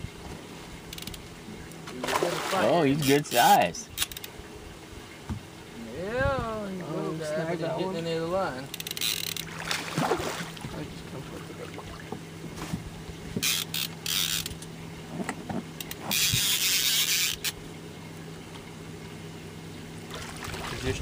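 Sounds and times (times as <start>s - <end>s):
steady low hum: 0.0s - 21.0s
fishing reel being cranked: 3.1s - 4.3s, 8.6s - 9.5s, 13.4s - 14.7s, 15.8s - 17.6s.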